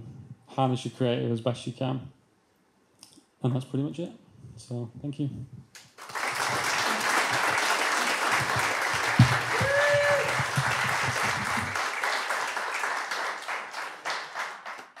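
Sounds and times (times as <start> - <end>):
audience applauding: 5.8 - 15.0
call from the crowd: 7.9 - 11.8
thump: 9.2 - 9.7.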